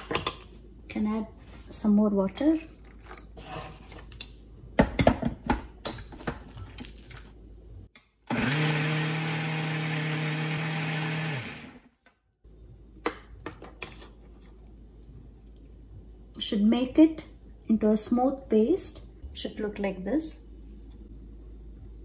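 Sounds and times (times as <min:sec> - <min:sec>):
electric mixer grinder running: 0:08.3 - 0:11.8.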